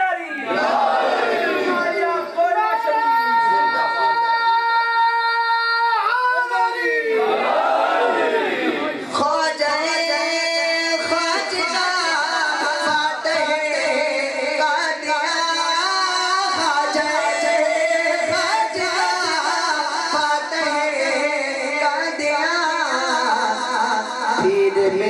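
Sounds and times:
man singing into a microphone: 9.1 - 25.0.

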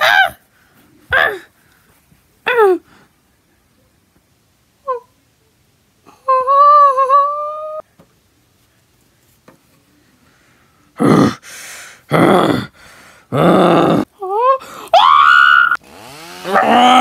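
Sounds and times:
mouth-made chainsaw noise: 15.8 - 17.0.

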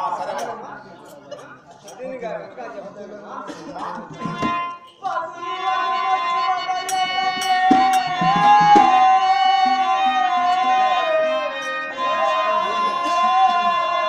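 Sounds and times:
person singing a long note: 4.3 - 14.0.

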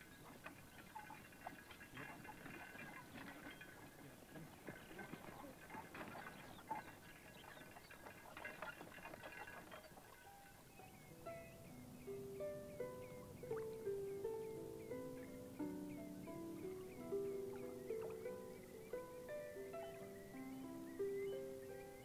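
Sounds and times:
soft animal sounds: 0.0 - 15.4
horse hooves clattering: 0.0 - 22.0
plucked musical notes: 10.0 - 22.0.

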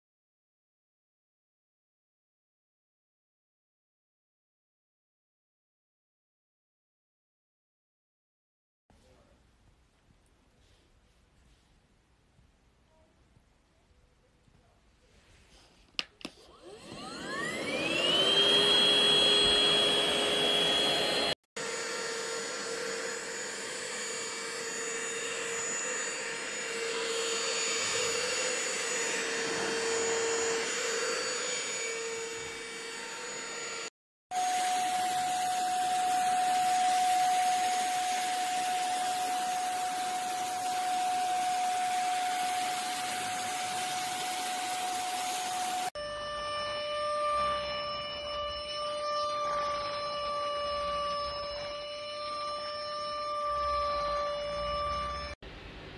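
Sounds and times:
handheld vacuum motor whine: 16.2 - 55.4.

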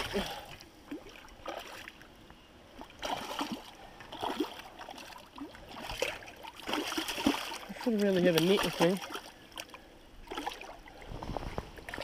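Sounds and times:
stream running: 0.0 - 12.0
fish splashing in water: 2.8 - 11.0.

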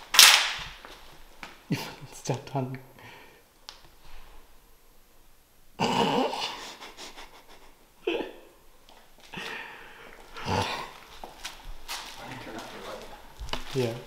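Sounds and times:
person gasping and breathing heavily: 9.2 - 11.2.

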